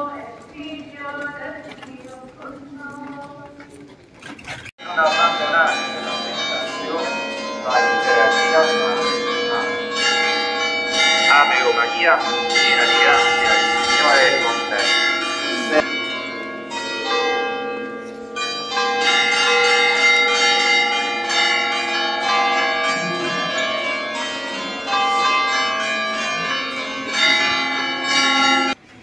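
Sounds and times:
church bells pealing: 0:04.8 - 0:28.8.

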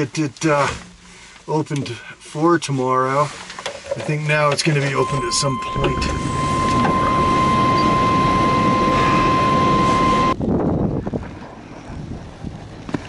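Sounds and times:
thin high steady whine: 0:04.8 - 0:10.4
vehicle engine running: 0:05.0 - 0:13.0.

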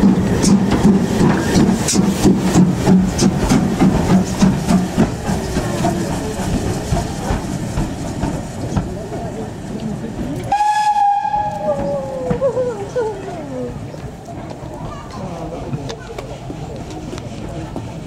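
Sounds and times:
steam locomotive hissing steam: 0:00.0 - 0:08.7.

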